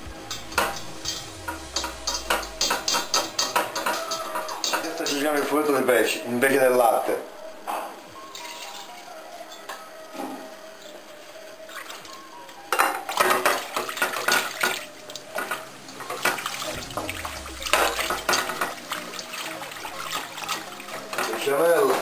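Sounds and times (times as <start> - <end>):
whisk scraping a metal pot: 0.3 - 5.8.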